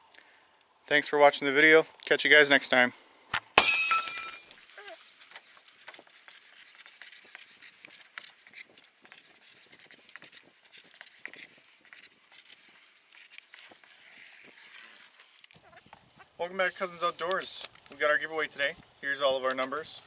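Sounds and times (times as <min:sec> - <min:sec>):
marker scratching on cardboard: 0:05.5 - 0:16.0.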